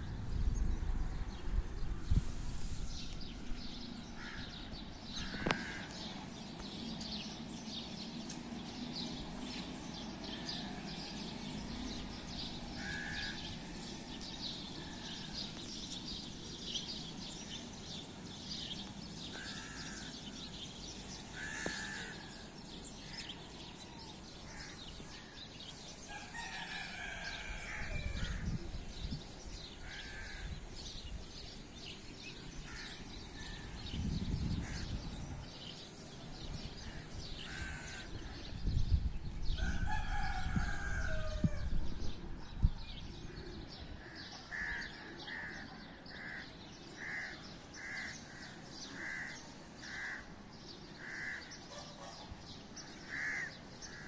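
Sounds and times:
small birds chirping: 0.0s - 26.6s
crows cawing: 4.2s - 4.6s, 5.2s - 6.0s, 12.8s - 13.5s, 19.3s - 20.2s, 21.3s - 22.5s, 29.8s - 30.5s, 32.6s - 33.7s, 36.8s - 38.1s, 44.0s - 50.3s, 51.0s - 51.6s, 53.0s - 54.0s.

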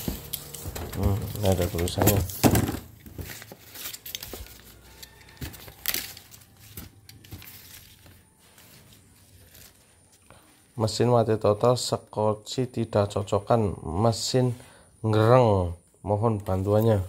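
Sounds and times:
paper note rustling: 0.0s - 2.4s
cardboard flaps rustling and clicking: 0.0s - 8.2s
styrofoam packing rustling: 0.0s - 10.2s.

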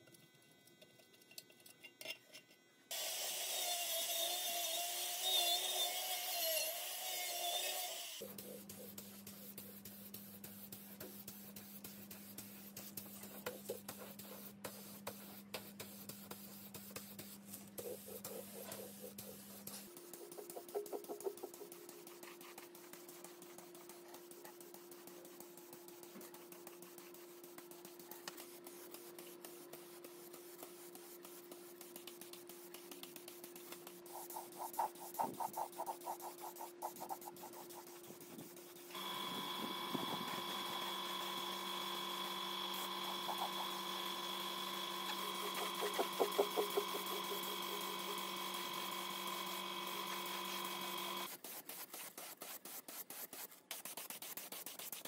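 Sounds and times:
tool work bursts: 2.9s - 8.2s, 38.9s - 51.3s
machine motor humming: 39.0s - 51.3s.

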